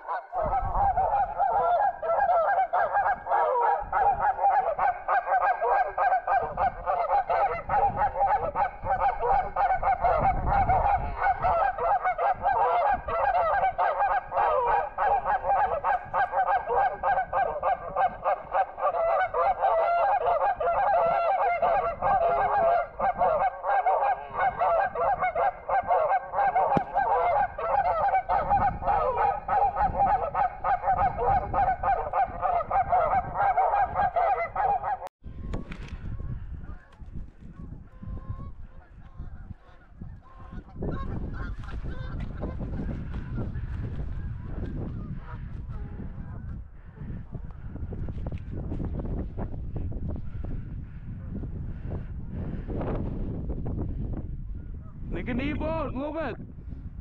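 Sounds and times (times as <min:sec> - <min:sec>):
geese honking: 0:00.0 - 0:35.1, 0:38.2 - 0:43.8.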